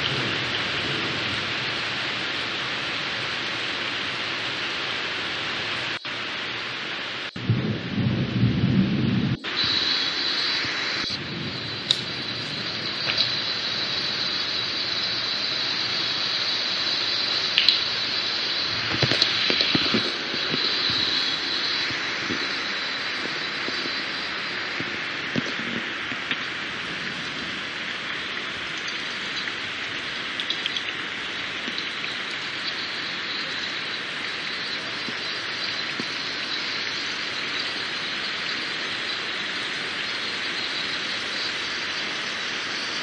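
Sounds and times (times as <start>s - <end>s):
thunder rumbling: 0.0s - 4.2s, 7.3s - 15.9s, 18.6s - 38.4s
steady rain: 0.0s - 43.0s.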